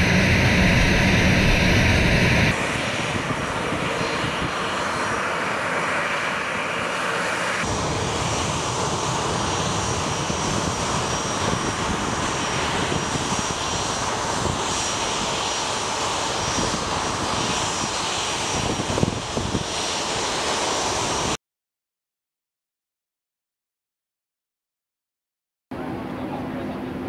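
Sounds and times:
high turbine whine: 0.0 - 21.4
jet engines roaring: 0.0 - 21.4.

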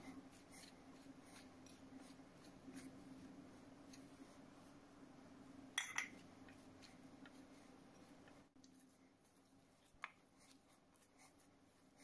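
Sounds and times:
steady low hum: 0.0 - 12.0
glass clink: 5.8 - 6.2
hand squeezing dough: 6.1 - 12.0.

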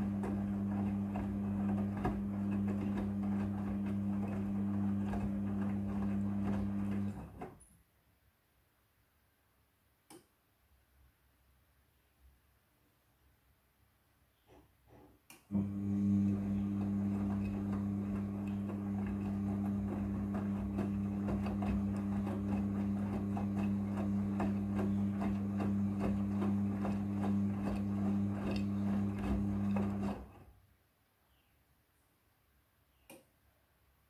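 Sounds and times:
washing machine drum turning: 0.0 - 7.4, 15.6 - 30.3.

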